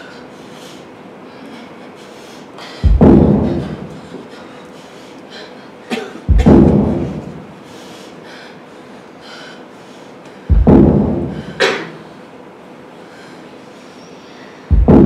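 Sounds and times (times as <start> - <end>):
deep heavy thuds: 2.8 - 4.0, 6.3 - 7.5, 10.5 - 11.6, 14.7 - 15.0.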